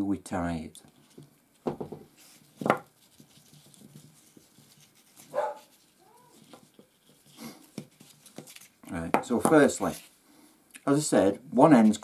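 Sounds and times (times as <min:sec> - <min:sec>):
dog barking: 0:05.3 - 0:05.7
dog whining: 0:05.3 - 0:06.4.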